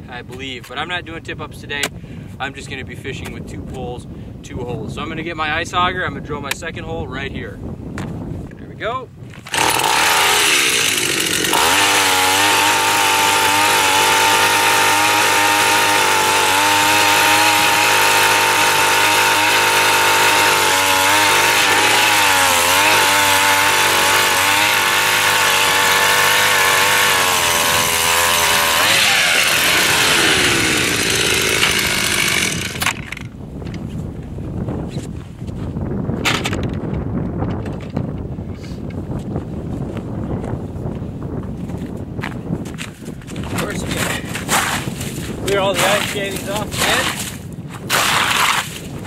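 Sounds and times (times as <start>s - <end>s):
ice auger engine revving: 9.4s - 33.2s, 47.9s - 48.8s.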